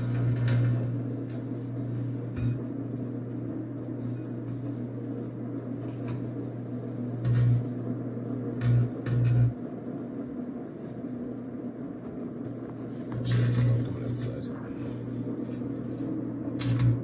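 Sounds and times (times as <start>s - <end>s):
electric arc crackles: 0.0s - 17.0s
microwave oven hum: 0.0s - 17.0s.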